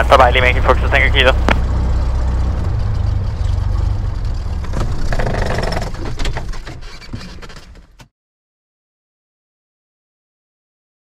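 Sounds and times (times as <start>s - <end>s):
propeller spinning down: 0.0s - 7.2s
aircraft engine idling: 0.0s - 7.8s.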